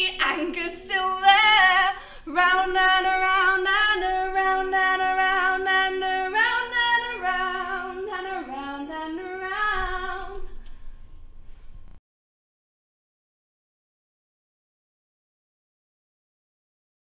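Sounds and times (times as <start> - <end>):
women singing in harmony: 0.0 - 10.6.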